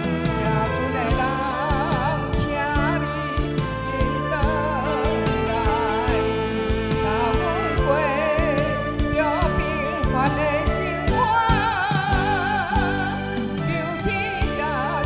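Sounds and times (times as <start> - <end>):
backing music with drum beat: 0.0 - 15.0
woman singing with vibrato: 0.0 - 15.0.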